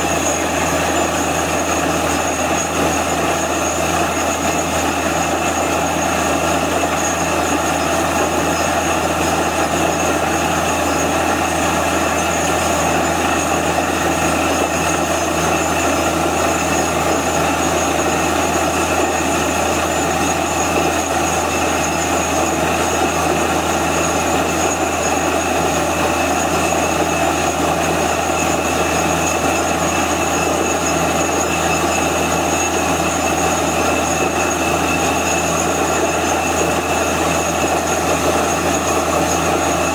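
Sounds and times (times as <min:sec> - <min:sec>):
drilling rig running: 0:00.0 - 0:39.9.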